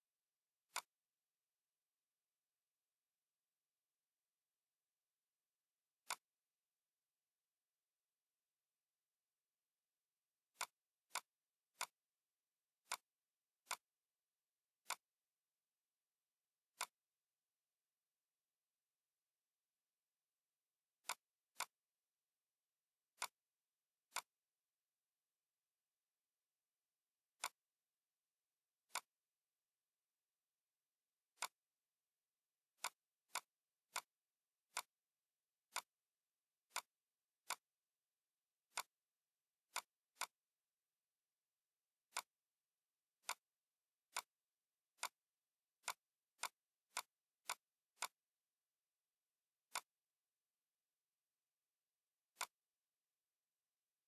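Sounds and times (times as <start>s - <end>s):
computer mouse clicking: 0.7s - 1.0s, 6.0s - 6.3s, 10.5s - 12.0s, 12.8s - 13.9s, 14.8s - 15.1s, 16.7s - 17.0s, 21.0s - 21.8s, 23.1s - 23.4s, 24.1s - 24.4s, 27.4s - 27.6s, 28.9s - 29.2s, 31.3s - 31.6s, 32.8s - 35.0s, 35.7s - 36.0s, 36.7s - 37.8s, 38.7s - 39.0s, 39.7s - 40.4s, 42.1s - 42.4s, 43.2s - 43.5s, 44.1s - 45.2s, 45.8s - 48.3s, 49.7s - 50.1s, 52.3s - 52.7s.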